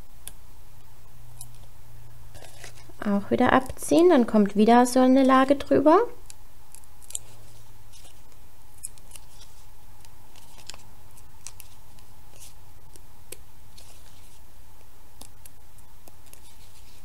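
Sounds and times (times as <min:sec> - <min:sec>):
steady low hum: 0:00.0 - 0:17.0
paper rustling: 0:07.1 - 0:08.3, 0:09.1 - 0:12.6, 0:13.7 - 0:14.5, 0:16.2 - 0:17.0.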